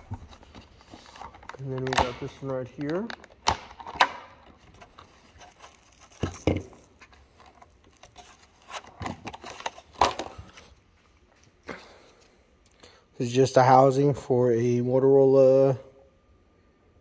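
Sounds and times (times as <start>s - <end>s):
plastic packaging crinkling: 0.0s - 10.8s.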